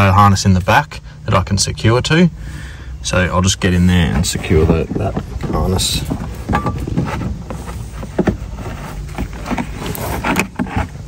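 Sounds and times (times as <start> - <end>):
steady low rumble: 0.0 - 10.2
hands rustling plastic panel: 4.0 - 11.0.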